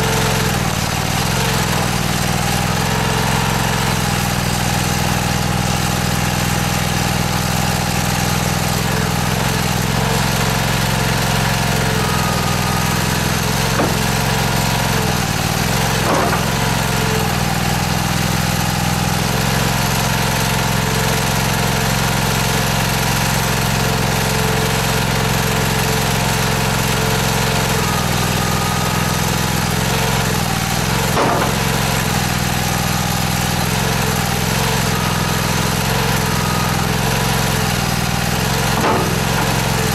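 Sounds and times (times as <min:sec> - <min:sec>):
small engine running: 0:00.0 - 0:39.9.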